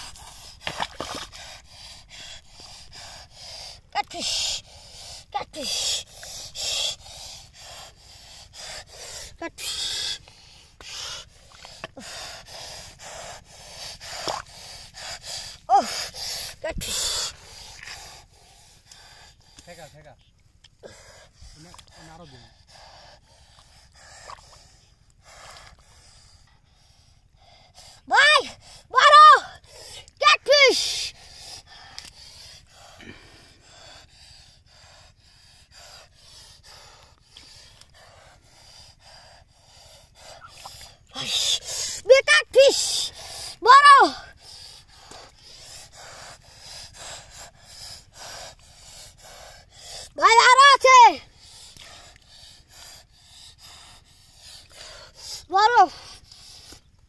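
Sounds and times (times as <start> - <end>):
hands squelching through mud: 0.0 - 2.0
person panting: 0.0 - 57.0.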